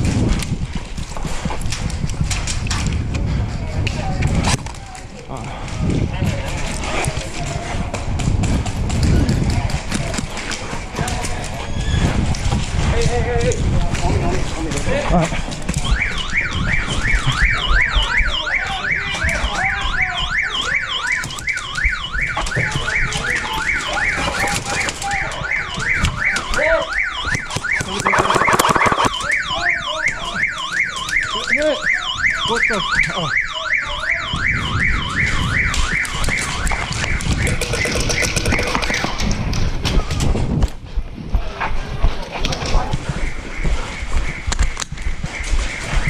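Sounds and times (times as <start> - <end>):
electronic alarm siren: 15.8 - 39.2, 43.3 - 46.0.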